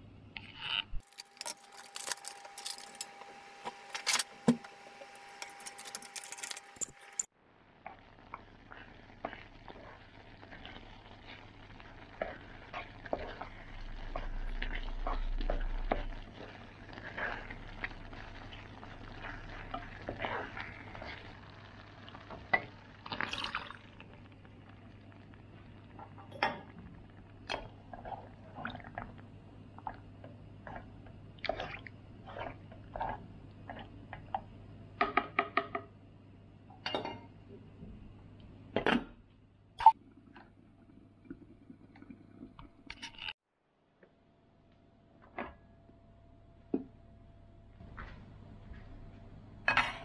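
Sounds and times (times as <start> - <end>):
curry bubbling in a pan: 7.5 - 34.6
water pouring: 23.0 - 25.0.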